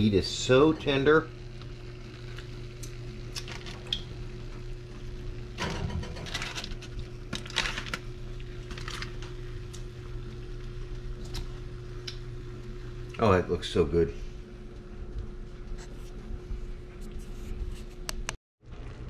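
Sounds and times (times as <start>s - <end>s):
steady low hum: 0.0s - 19.0s
aluminum foil crinkling: 3.3s - 4.0s, 6.2s - 9.9s.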